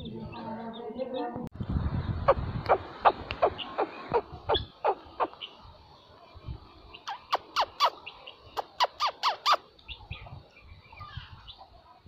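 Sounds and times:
guineafowl calling: 0:02.3 - 0:05.6.

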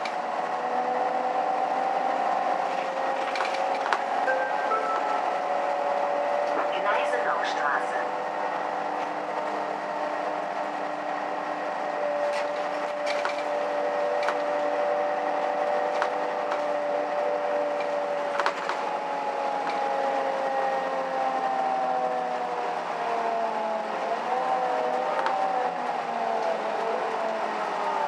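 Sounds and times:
bus drivetrain hum: 0:00.0 - 0:28.0
road noise: 0:00.0 - 0:28.0
whining tones falling in pitch: 0:00.1 - 0:22.4
interior clicks and rattles: 0:02.6 - 0:04.2, 0:12.2 - 0:14.7.

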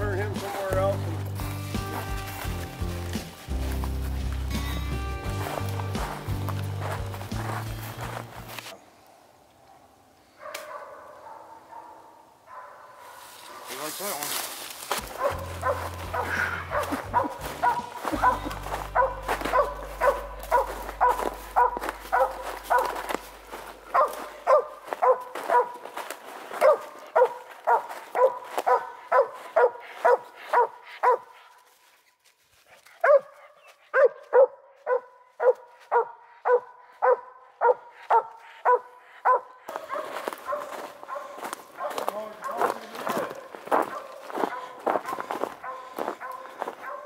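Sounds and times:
dog barking: 0:09.1 - 0:13.9, 0:15.1 - 0:31.6, 0:33.0 - 0:47.0.

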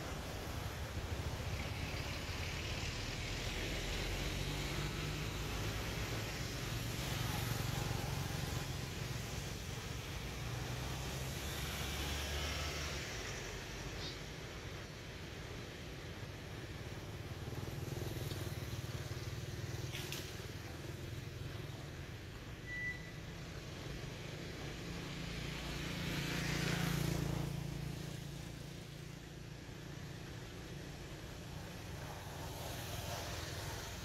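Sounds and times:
vehicle engine passing by: 0:00.0 - 0:13.9, 0:23.6 - 0:34.0
short high peep: 0:22.6 - 0:23.2.

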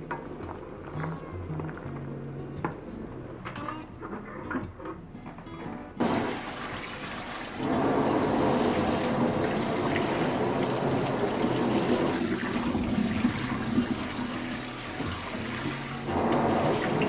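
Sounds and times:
tap water splashing into pan: 0:06.0 - 0:07.8, 0:08.4 - 0:17.0
water spilling into metal sink: 0:06.0 - 0:17.0.

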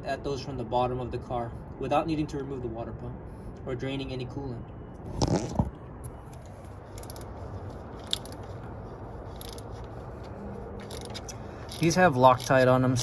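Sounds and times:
hand ratchet clicking: 0:07.0 - 0:07.3, 0:08.0 - 0:08.4, 0:09.4 - 0:09.7, 0:10.8 - 0:13.0.

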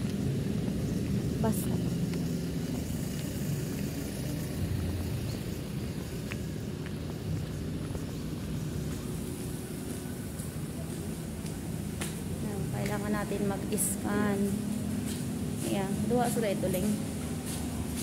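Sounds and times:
street traffic rumble: 0:00.0 - 0:18.0.

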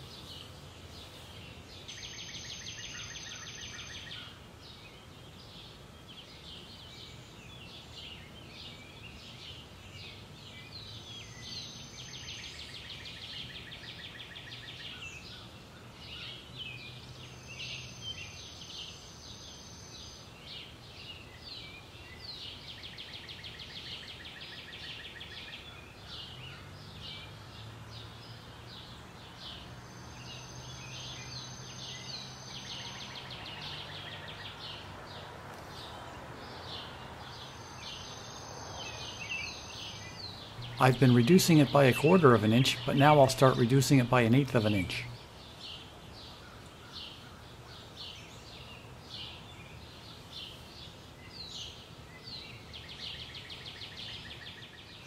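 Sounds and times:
birds chirping and trilling: 0:00.0 - 0:55.0.

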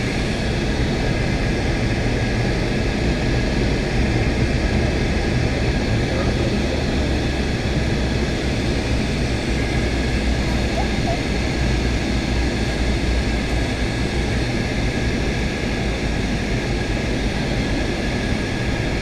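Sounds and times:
jet engines rushing: 0:00.0 - 0:19.0
airflow over fuselage: 0:05.0 - 0:19.0
faint steady tones: 0:09.7 - 0:11.4.

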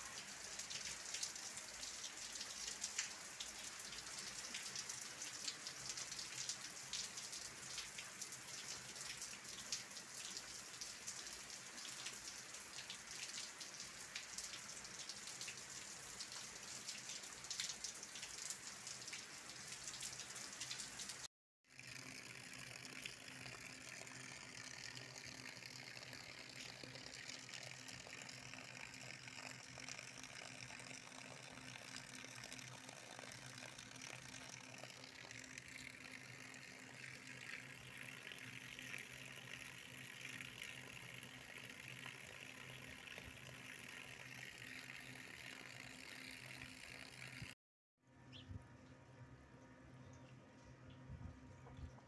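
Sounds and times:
runoff water running over ground: 0:00.0 - 0:47.6.

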